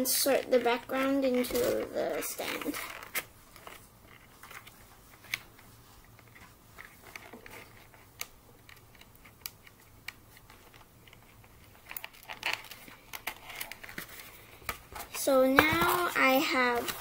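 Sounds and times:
cardboard pieces clicking and tapping: 15.6s - 16.1s.

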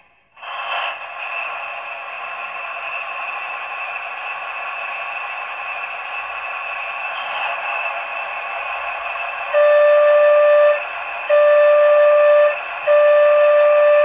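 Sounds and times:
hissing diesel engine idle: 0.0s - 14.0s
locomotive horn blasts: 9.6s - 14.0s.

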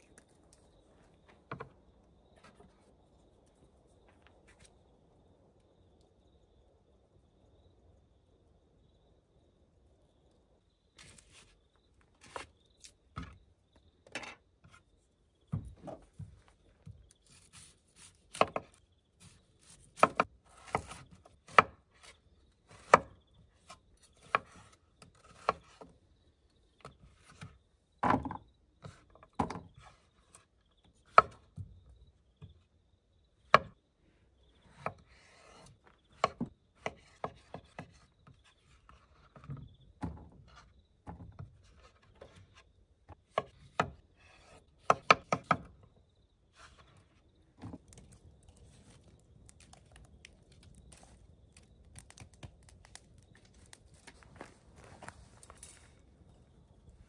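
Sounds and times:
chopping strokes on wood: 16.9s - 22.1s.

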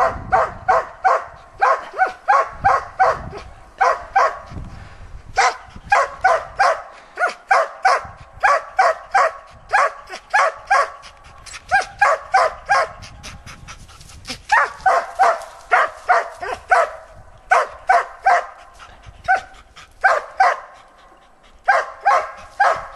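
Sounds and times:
dog barking: 0.0s - 4.5s, 5.4s - 11.0s, 11.7s - 13.0s, 14.5s - 18.6s, 19.3s - 20.8s, 21.7s - 22.9s.

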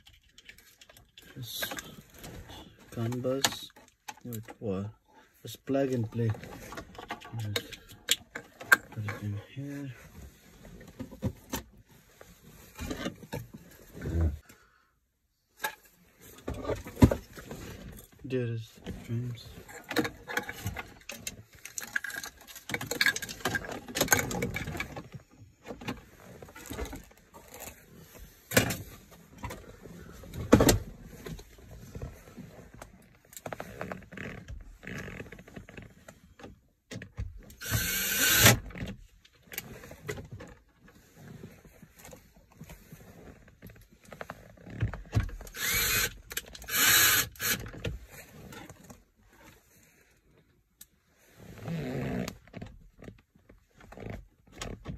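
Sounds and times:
plastic parts clicking and knocking: 19.8s - 25.0s.

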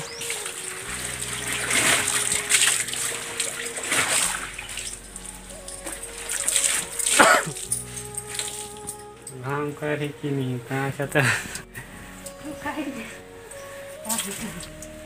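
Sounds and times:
water splashing in a tub: 0.0s - 8.8s
background music: 0.0s - 15.0s.

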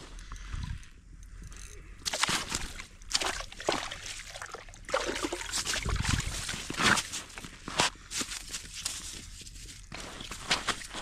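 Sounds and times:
fish thrashing and splashing in slush: 2.1s - 9.2s.

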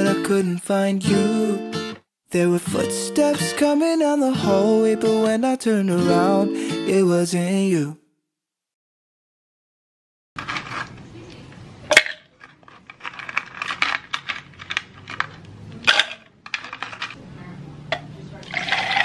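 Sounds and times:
ice cubes clattering into plastic cup: 10.4s - 11.0s, 11.9s - 17.2s, 18.5s - 19.0s.

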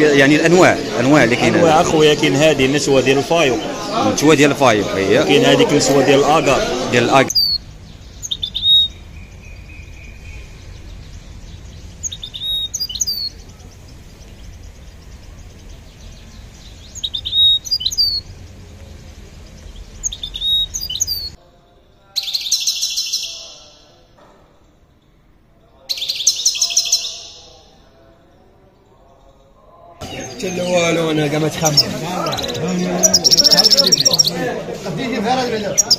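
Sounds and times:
rapid high twittering birdsong: 0.0s - 35.9s
steady low background noise: 0.0s - 35.9s
bird chirps: 7.2s - 21.4s, 25.8s - 27.8s, 30.0s - 34.4s, 35.7s - 35.9s.

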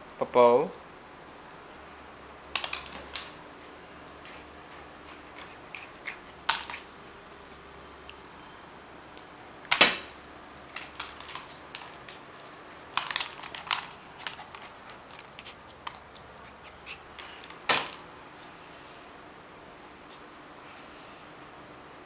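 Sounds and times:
chew bone clacking on tile floor: 4.7s - 6.9s, 10.7s - 17.6s.

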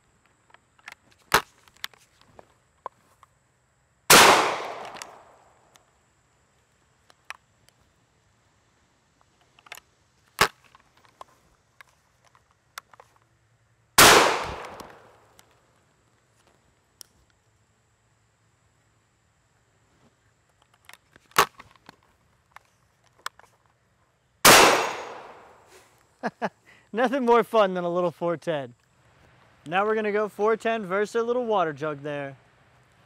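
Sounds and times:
shotgun shots: 4.1s - 5.5s, 14.0s - 15.2s, 24.4s - 25.6s
shotgun action clicks and snap: 4.1s - 5.8s, 14.0s - 15.6s, 24.5s - 25.6s.

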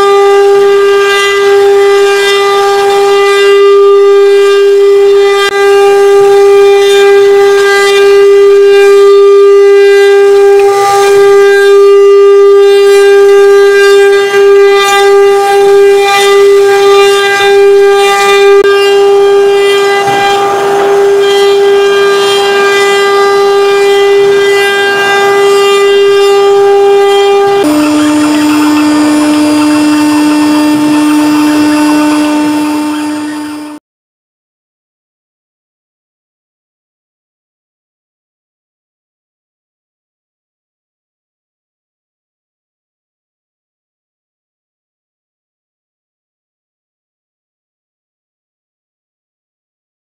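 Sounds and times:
bit cutting wood: 0.0s - 33.8s
router spindle whining: 0.0s - 33.8s.

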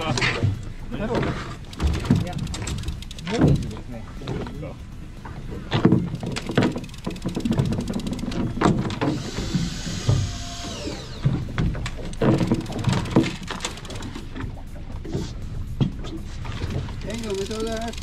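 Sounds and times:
knocks and mechanical rattling: 0.0s - 18.0s
falling whine: 6.6s - 14.9s.

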